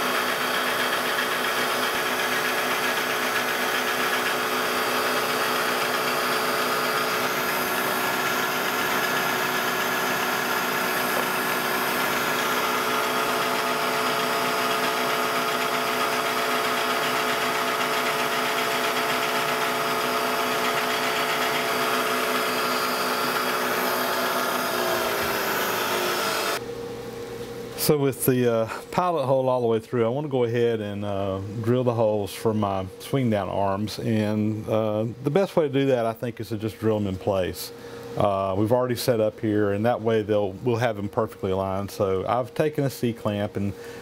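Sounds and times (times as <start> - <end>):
drill press running: 0.0 - 26.6
motor spinning down: 0.0 - 26.6.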